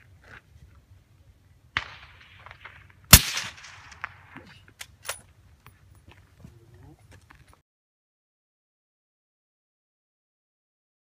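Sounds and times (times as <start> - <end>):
suppressed rifle shots: 1.8 - 4.4.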